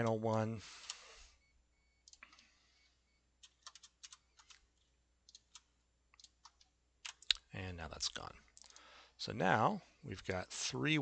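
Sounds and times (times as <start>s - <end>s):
computer keyboard and mouse clicks: 2.0s - 2.5s, 3.4s - 7.5s.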